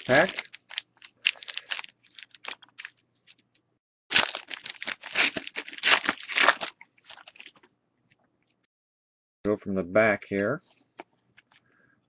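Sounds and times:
wrapper tearing and crinkling: 0.0 - 3.5, 4.1 - 7.7.

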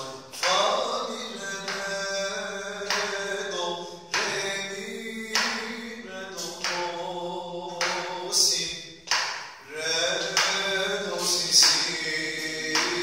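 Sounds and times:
man singing note names: 0.0 - 8.8.

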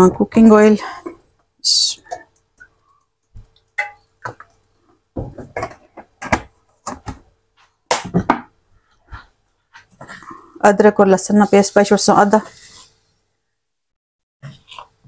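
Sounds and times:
kitchen utensils knocking and clattering: 3.8 - 4.6.

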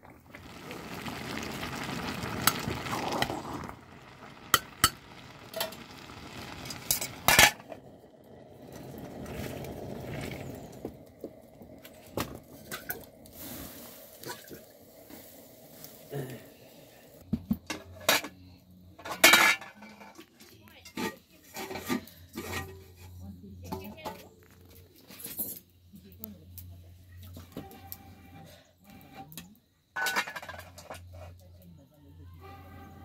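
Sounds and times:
steady rushing hiss: 0.4 - 17.3
pot lid clinking and clattering: 19.0 - 20.2, 30.0 - 31.0.

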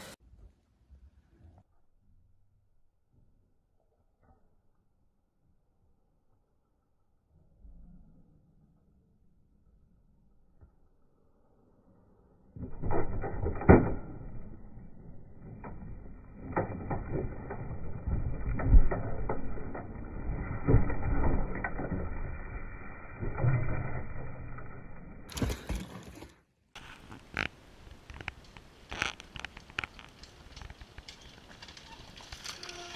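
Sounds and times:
mountain bike rattling over dirt: 12.8 - 28.1, 28.9 - 32.9.

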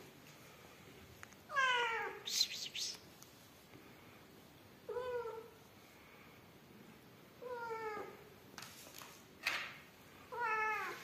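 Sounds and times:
cat meowing: 1.5 - 2.2, 10.3 - 11.0.

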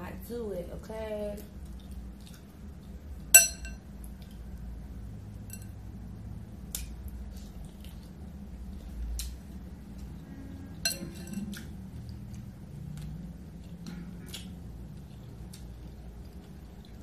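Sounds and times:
ringing clink against glass bowl: 3.4 - 3.8, 10.9 - 11.4
wet squishy fingers in sauce: 11.3 - 17.0.

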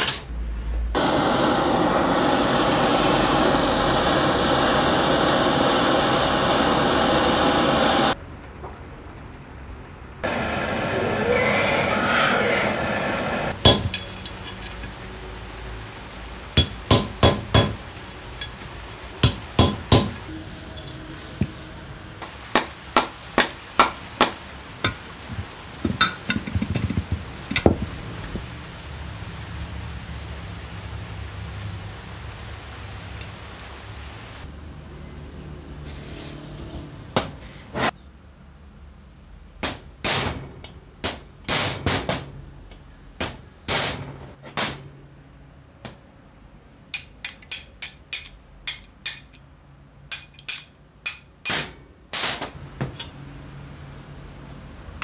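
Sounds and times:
hammer striking steel socket: 46.9 - 49.4, 50.1 - 51.6.

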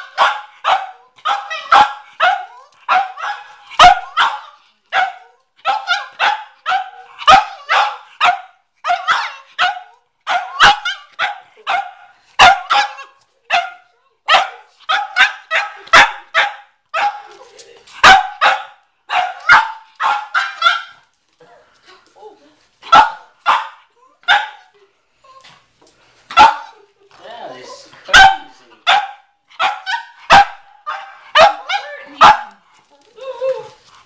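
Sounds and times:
dog barking sharply: 0.2 - 4.4, 18.0 - 20.9, 28.1 - 32.5.

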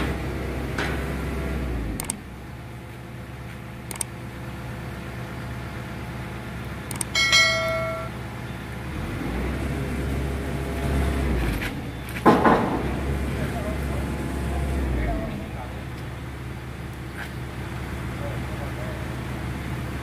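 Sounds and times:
low engine hum: 0.0 - 20.0
sharp metal knocks: 6.9 - 8.2
metal clank ringing: 7.1 - 8.2.

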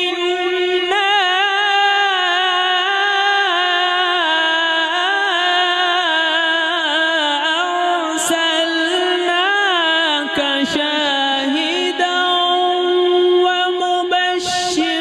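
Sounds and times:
man reciting melodically: 0.0 - 15.0.

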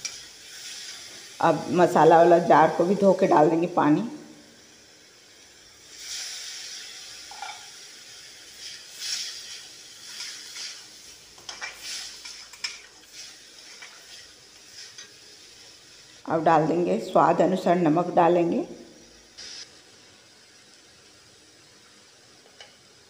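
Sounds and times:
masala sizzling in a pan: 0.0 - 23.0
metal spatula scraping a pan: 7.3 - 7.8.

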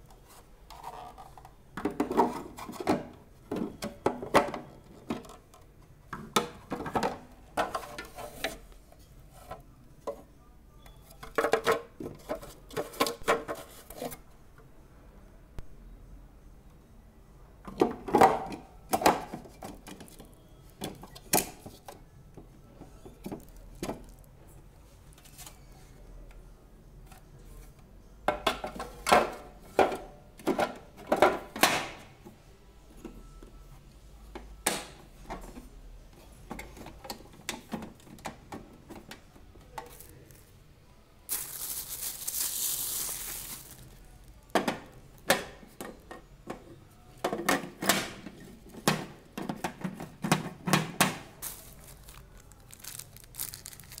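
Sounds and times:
plastic parts clattering: 41.3 - 46.2, 47.2 - 54.0.

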